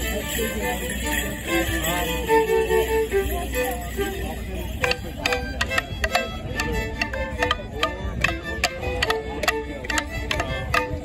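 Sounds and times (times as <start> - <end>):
wooden sticks clacking: 4.8 - 11.0.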